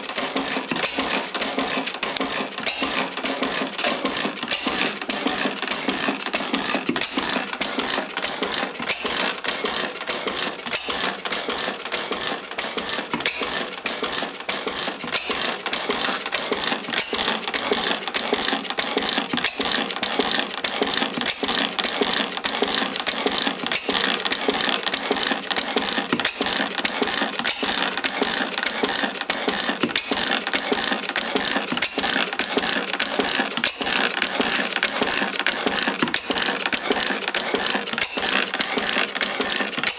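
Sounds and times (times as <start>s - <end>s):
engine knock: 0.0s - 39.9s
gas engine mechanical clatter: 0.0s - 39.9s.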